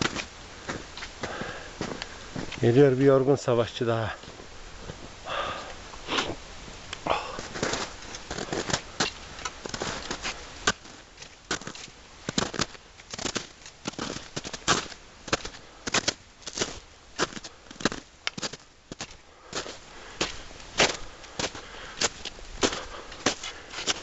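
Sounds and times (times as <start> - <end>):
footsteps crunching in snow: 0.0 - 6.4, 7.1 - 24.0.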